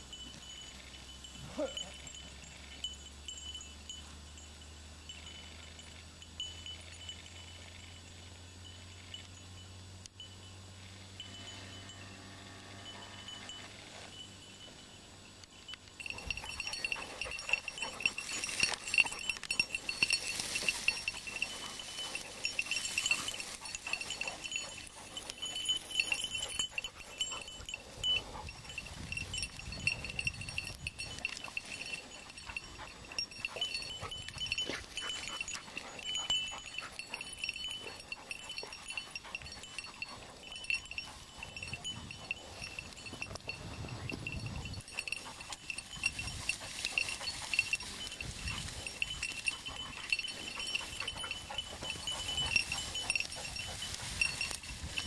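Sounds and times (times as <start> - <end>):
small bell jingling: 0.0 - 55.0
rustling of dry grass and brush: 12.9 - 55.0.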